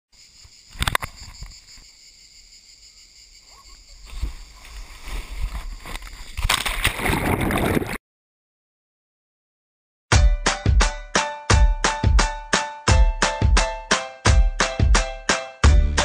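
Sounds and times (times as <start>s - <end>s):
rubbing and swishing on wet plastic: 4.1s - 8.0s
water splashing: 4.2s - 8.0s.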